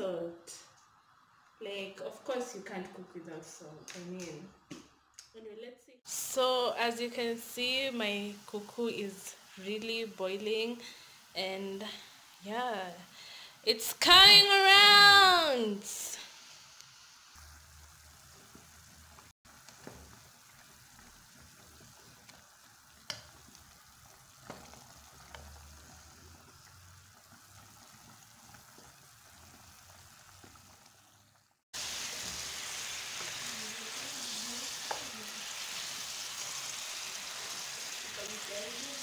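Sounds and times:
chicken sizzling in pot: 0:06.1 - 0:39.0
water bubbling in pot: 0:17.4 - 0:31.6.

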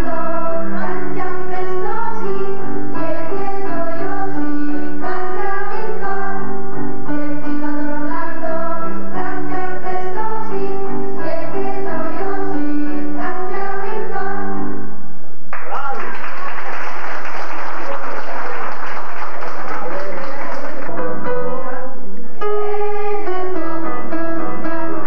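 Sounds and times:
children singing together: 0:00.0 - 0:14.7, 0:22.4 - 0:24.8.

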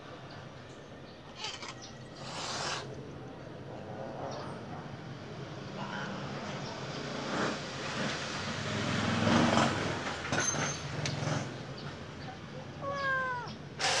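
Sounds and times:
vehicles rumbling by: 0:00.0 - 0:14.0
kitten meowing: 0:12.8 - 0:14.0.

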